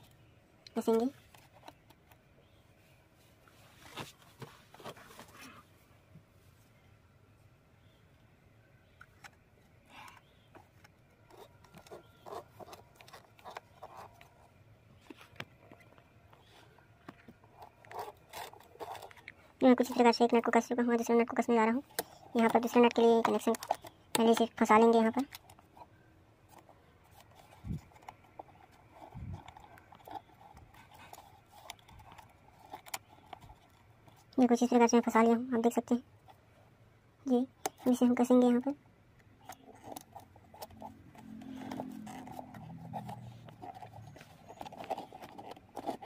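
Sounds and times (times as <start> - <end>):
small clicks and scrapes: 9.0 - 20.4, 21.8 - 34.6, 39.3 - 46.0.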